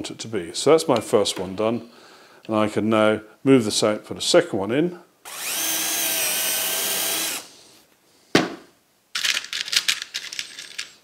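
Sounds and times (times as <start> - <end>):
cordless drill driving screw: 5.3 - 7.5
screws rattling in plastic tray: 9.2 - 11.0.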